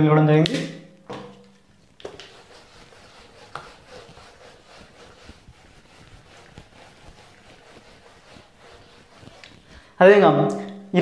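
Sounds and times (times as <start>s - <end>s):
duster rubbing on whiteboard: 1.7s - 10.0s.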